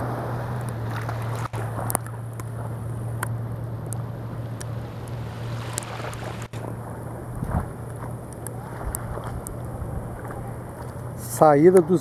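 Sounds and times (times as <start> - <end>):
motorboat engine drone: 0.0 - 12.0
wind noise on microphone: 7.3 - 7.8, 8.7 - 10.5.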